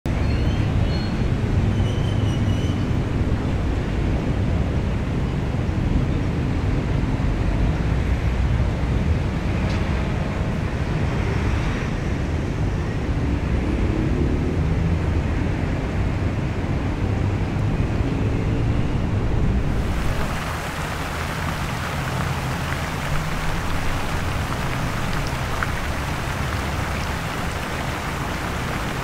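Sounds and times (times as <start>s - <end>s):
traffic rumble: 15.2s - 29.0s.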